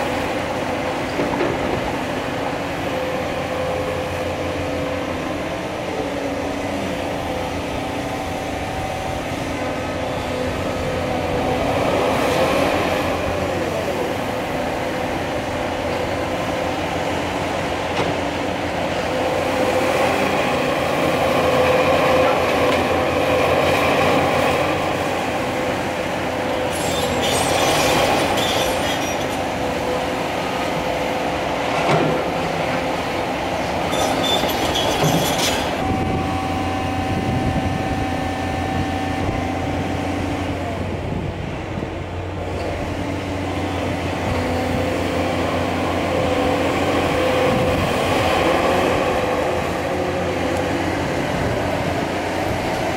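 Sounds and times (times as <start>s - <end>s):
steel tracks clanking and squealing: 0.0s - 31.0s, 31.6s - 39.2s
excavator diesel engine: 0.0s - 52.9s.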